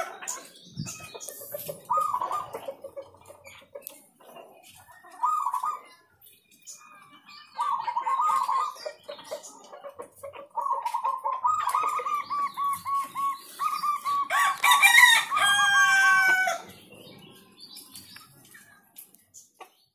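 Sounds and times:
dove cooing: 0.8 - 3.3, 5.1 - 5.9, 7.6 - 16.6.

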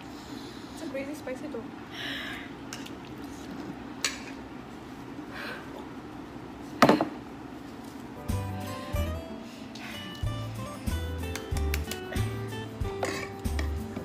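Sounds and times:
guitar music: 8.2 - 14.0
utensil clicking against bowl: 11.2 - 12.3.

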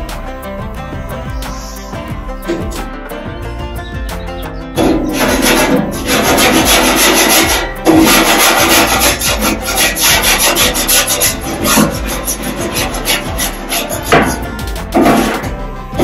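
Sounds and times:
scraper rasping inside grill barrel: 4.8 - 15.5.

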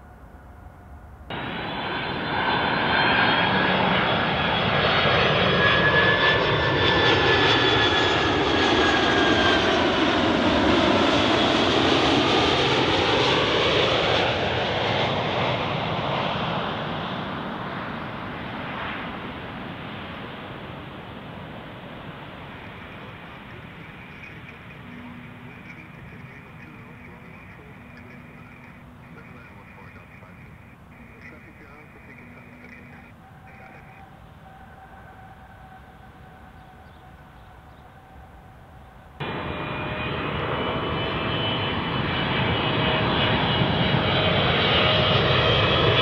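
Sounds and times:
jet aircraft passing overhead: 0.0 - 46.0.

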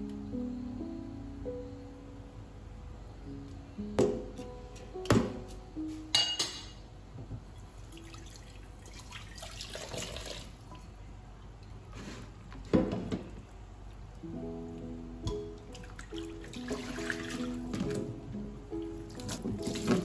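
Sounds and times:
tap water running into pot: 7.9 - 10.6.

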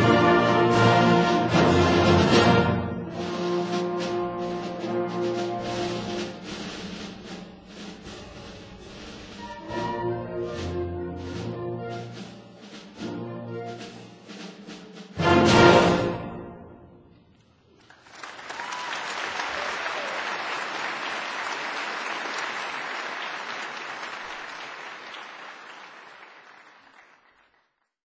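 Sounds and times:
audience applauding: 17.7 - 28.0.

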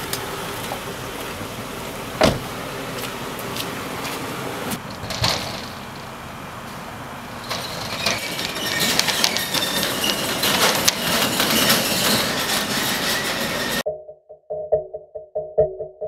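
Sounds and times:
metal shutter door rattling and squealing: 4.8 - 6.2, 7.2 - 13.8.

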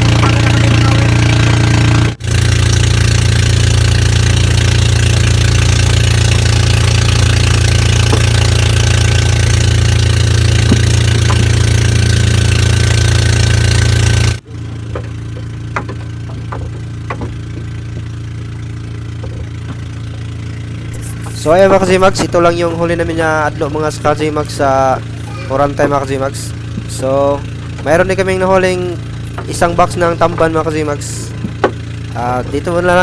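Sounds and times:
boat engine running: 0.0 - 33.0
light knocks: 14.9 - 18.2.

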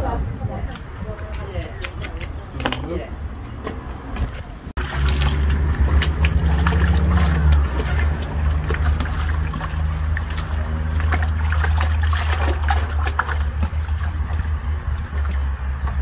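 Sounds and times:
boiling water splashing in pot: 4.8 - 16.0.

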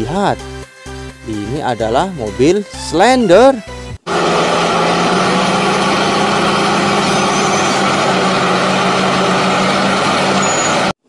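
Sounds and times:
engine running: 4.1 - 11.0.

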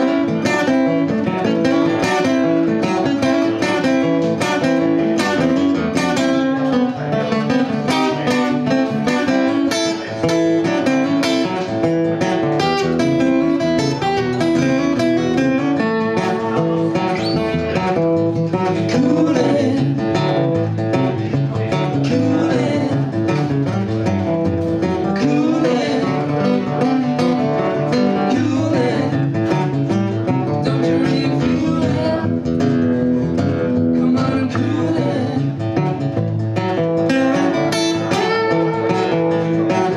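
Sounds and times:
acoustic guitars playing: 0.0 - 39.9
person singing: 18.6 - 23.8, 25.0 - 32.6, 33.6 - 35.9.

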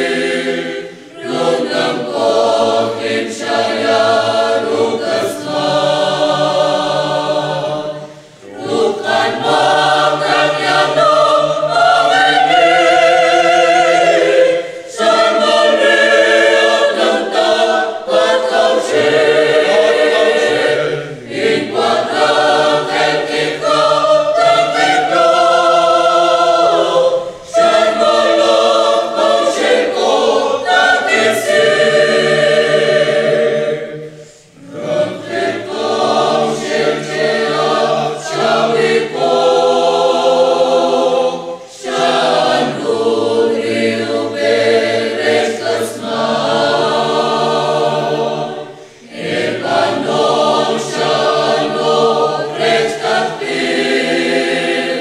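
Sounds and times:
mixed choir singing a hymn: 0.0 - 55.0.

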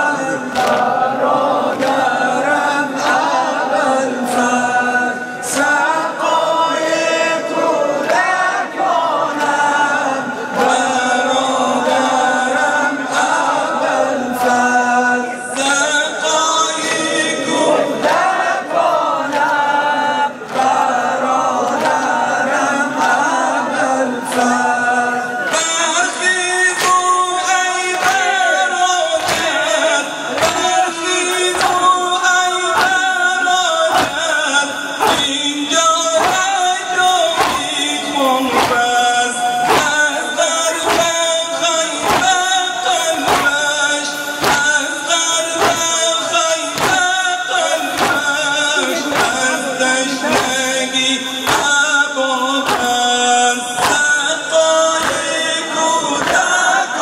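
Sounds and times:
crowd of men singing: 0.0 - 57.0
man chanting over microphone: 0.0 - 57.0
hands slapping chests: 0.5 - 1.0, 1.6 - 2.2, 20.4 - 23.5, 26.7 - 28.4, 29.1 - 31.9, 32.7 - 34.4, 35.0 - 35.5, 36.1 - 49.6, 50.2 - 50.7, 51.4 - 51.8, 52.6 - 53.0, 53.8 - 54.2, 55.0 - 55.4, 56.1 - 56.6.

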